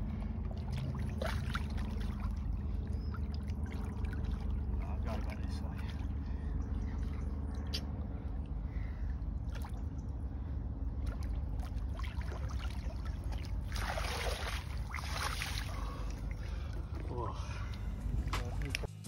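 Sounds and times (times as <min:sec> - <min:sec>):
water sloshing: 0:00.0 - 0:18.9
low rumble: 0:00.0 - 0:19.0
loud rushing splash: 0:13.7 - 0:15.8.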